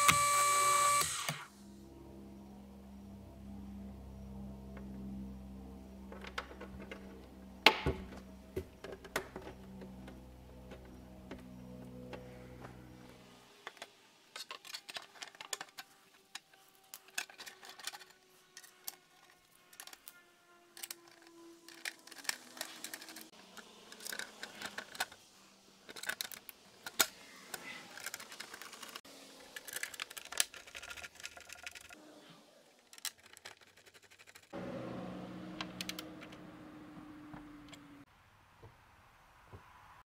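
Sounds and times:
metal fasteners clicking and tapping: 0:13.7 - 0:20.2, 0:29.6 - 0:32.0, 0:32.9 - 0:34.5.

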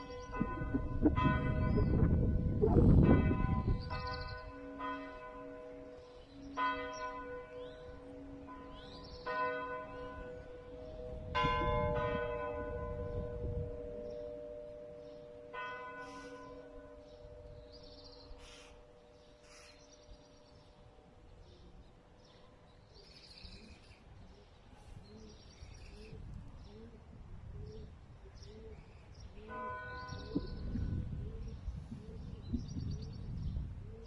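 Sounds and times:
church bells ringing: 0:00.0 - 0:22.9, 0:29.3 - 0:31.2.

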